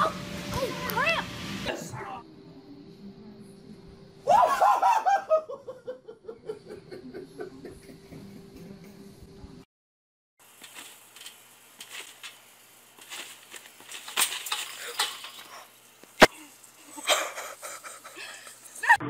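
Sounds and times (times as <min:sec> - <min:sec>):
trampoline springs rattling: 0:10.4 - 0:17.2.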